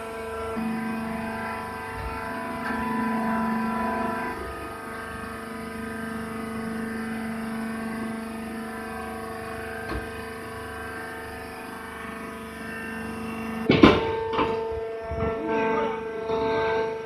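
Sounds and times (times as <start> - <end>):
hydraulic power unit humming: 0.0 - 17.0
loud knock: 13.7 - 15.3.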